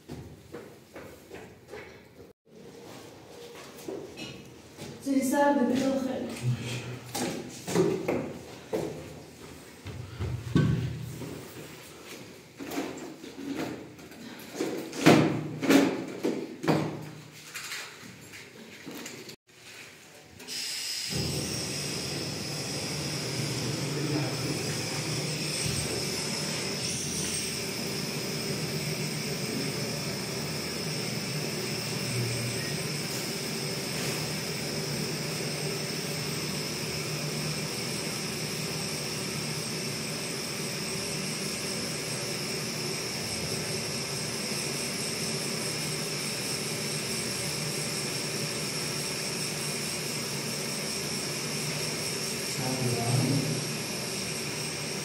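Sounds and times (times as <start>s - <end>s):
gas burner flame hissing: 21.1s - 55.0s.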